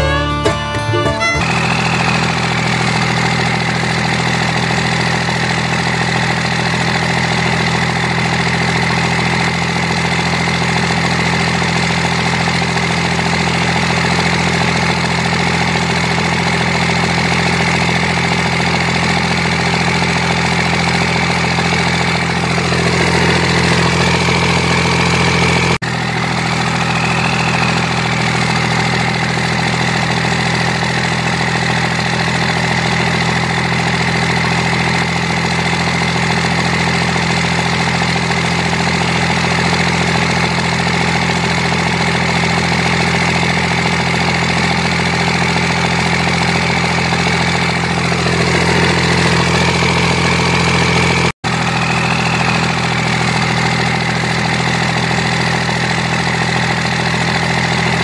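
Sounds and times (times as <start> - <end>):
drone propellers whining: 0.0 - 5.2, 20.9 - 34.5, 47.7 - 55.1.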